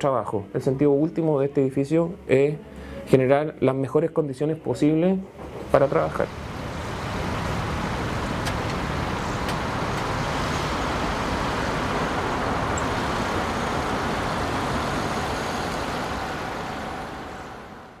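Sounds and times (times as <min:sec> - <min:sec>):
road traffic rumble: 0:05.3 - 0:18.0.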